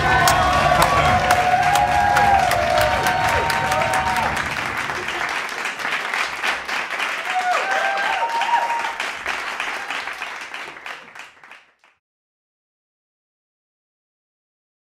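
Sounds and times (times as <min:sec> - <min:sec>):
people calling out: 0:00.0 - 0:05.2
people clapping: 0:00.0 - 0:12.0.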